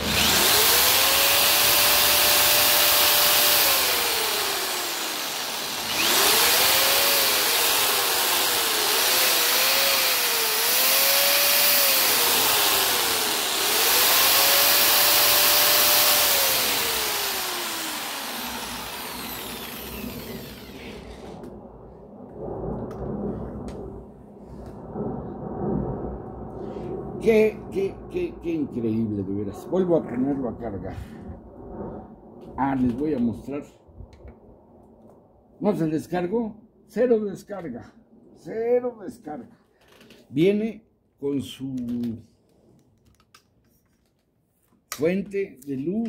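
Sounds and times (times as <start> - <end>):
power drill and jigsaw motors whining: 0.0 - 21.5.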